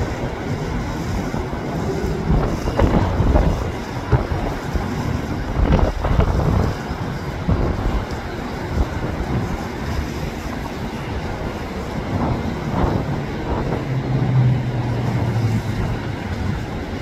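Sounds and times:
jet engines rumbling: 0:00.0 - 0:17.0
wind buffeting microphone: 0:00.0 - 0:17.0.

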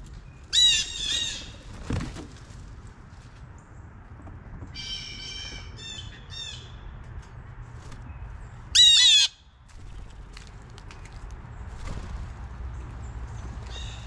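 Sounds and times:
blue jays harsh calls: 0:08.8 - 0:09.4.

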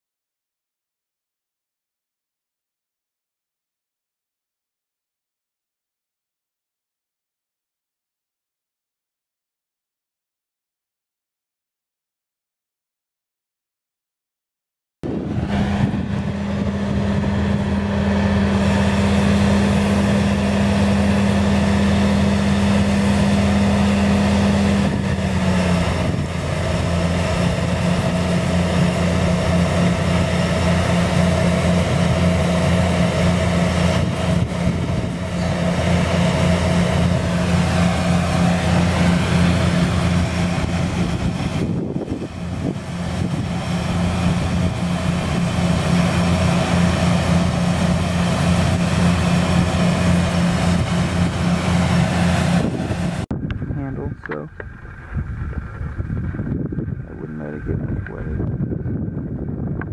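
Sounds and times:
combine harvester running: 0:15.0 - 0:59.9.

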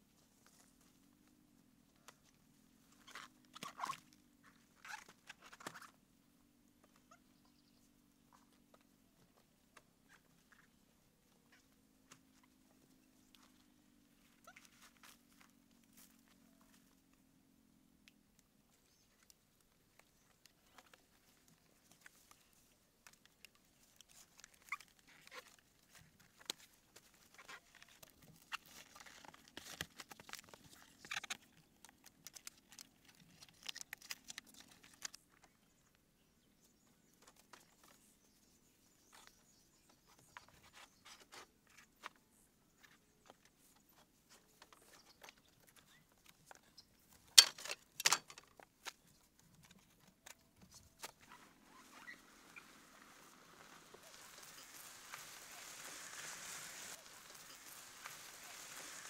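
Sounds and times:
bamboo slats clicking and creaking: 0:22.0 - 0:35.5, 0:44.3 - 0:51.3.

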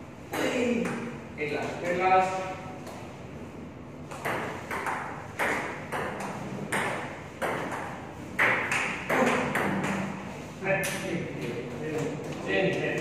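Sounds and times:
ball bouncing on table: 0:04.1 - 0:10.1.

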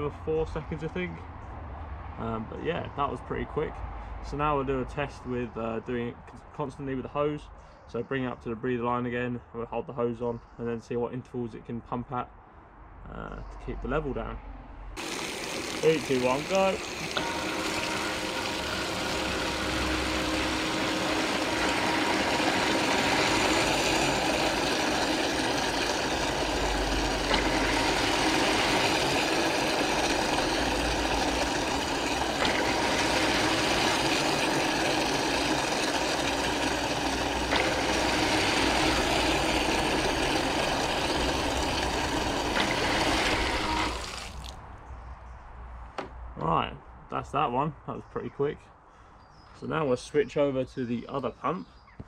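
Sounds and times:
bilge pump running: 0:15.0 - 0:44.6
garden hose spraying water: 0:15.0 - 0:44.6.

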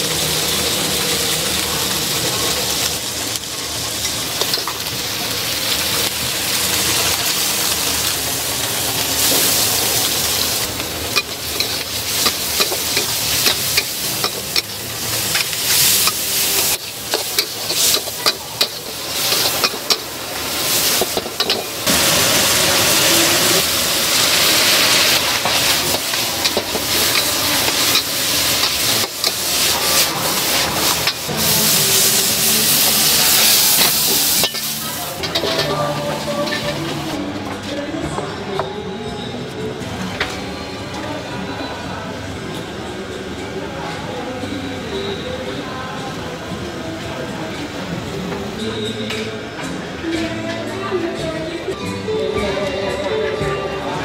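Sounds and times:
meat sizzling in a wok: 0:00.0 - 0:37.2
metal spatula scraping a wok: 0:10.3 - 0:37.2.

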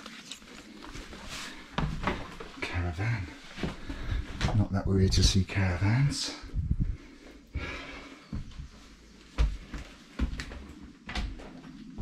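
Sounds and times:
footsteps dull thumps: 0:01.3 - 0:02.8, 0:03.4 - 0:05.5, 0:08.3 - 0:12.0.

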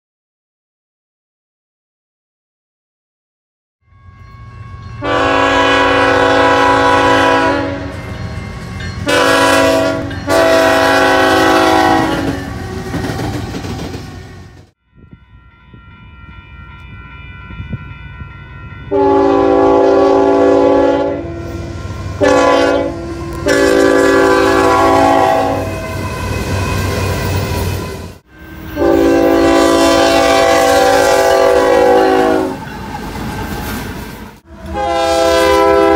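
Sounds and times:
crossing signal bell: 0:03.8 - 0:10.9, 0:14.8 - 0:20.2
locomotive air horn blasts: 0:05.0 - 0:08.0, 0:09.0 - 0:12.6, 0:18.9 - 0:26.4, 0:28.3 - 0:32.6, 0:34.4 - 0:35.9.

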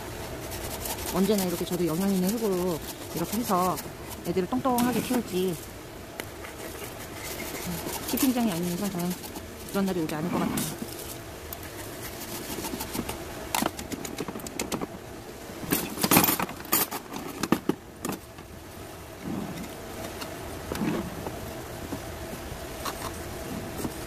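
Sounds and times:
gravel potting mix rattling: 0:00.0 - 0:18.5.

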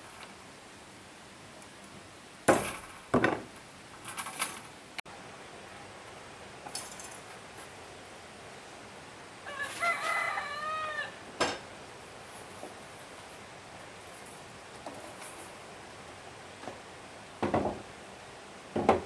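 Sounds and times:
rooster crowing: 0:09.4 - 0:11.3
sharp knocks: 0:17.4 - 0:17.8, 0:18.7 - 0:19.0.

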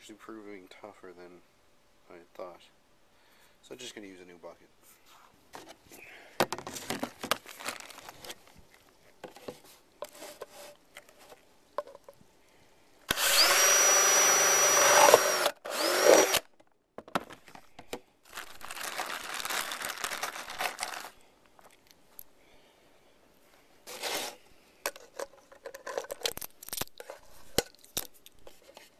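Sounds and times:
power drill drilling into plastic: 0:13.1 - 0:16.5.

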